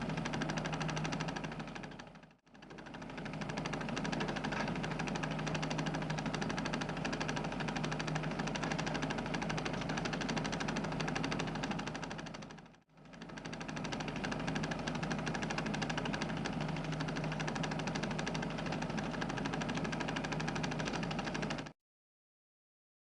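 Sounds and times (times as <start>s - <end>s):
film projector clattering: 0.0s - 21.8s.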